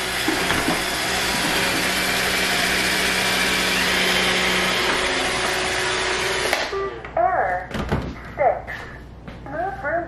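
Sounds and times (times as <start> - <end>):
robot vacuum whirring: 0.0 - 6.7.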